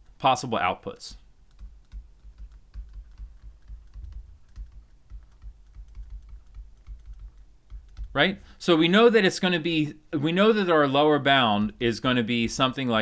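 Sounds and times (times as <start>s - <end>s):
stylus tapping on pen tablet: 1.6s - 8.2s.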